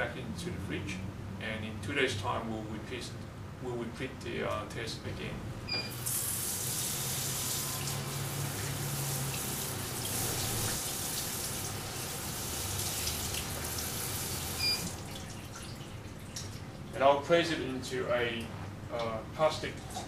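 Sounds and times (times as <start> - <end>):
water running from tap: 5.9 - 16.7.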